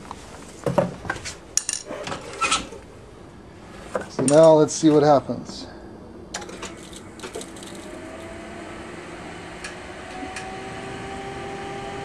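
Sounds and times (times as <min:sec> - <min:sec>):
faint rising whine: 0:05.9 - 0:12.0
charger whirring: 0:06.4 - 0:12.0
clicks: 0:09.6 - 0:10.5.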